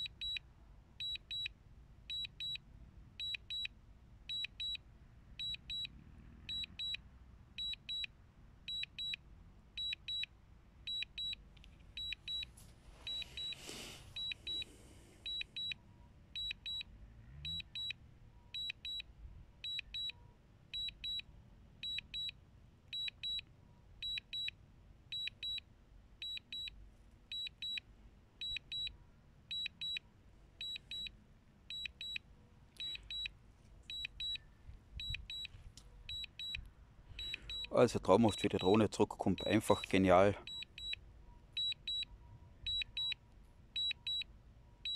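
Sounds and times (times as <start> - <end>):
high-pitched double beep: 37.2 - 38.8.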